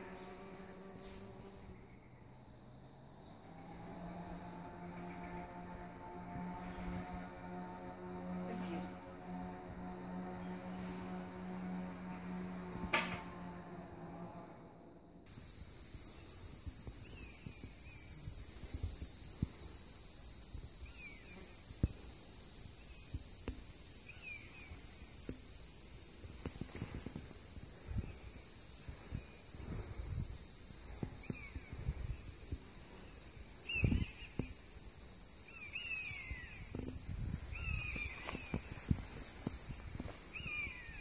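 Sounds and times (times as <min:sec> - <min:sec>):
insects shrilling: 0:15.3 - 0:41.0
wind rumble on microphone: 0:26.1 - 0:34.6, 0:36.2 - 0:41.0
bird descending calls: 0:37.4 - 0:39.3, 0:40.3 - 0:41.0.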